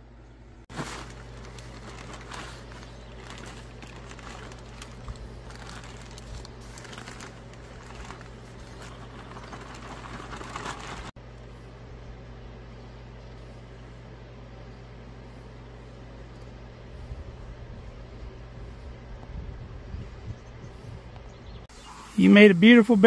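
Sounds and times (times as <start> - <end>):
potting mix pouring out: 0.7 - 11.1
plastic bag crinkling: 0.7 - 11.2.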